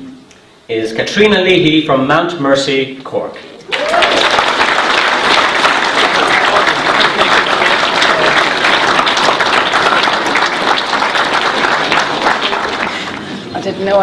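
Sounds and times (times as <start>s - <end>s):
audience applauding: 3.7s - 13.4s.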